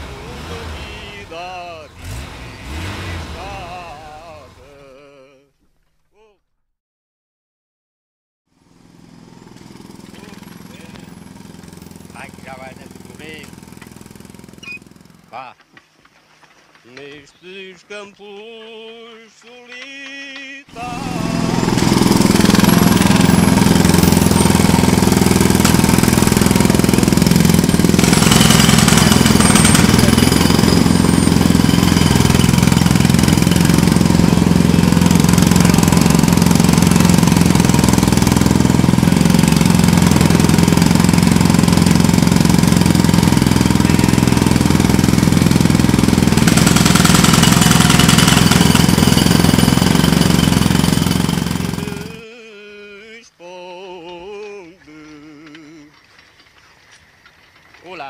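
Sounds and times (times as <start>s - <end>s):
heavy construction machinery running: 0.0s - 4.6s, 8.6s - 15.3s, 20.7s - 52.3s
rapid mechanical pounding: 20.8s - 52.2s.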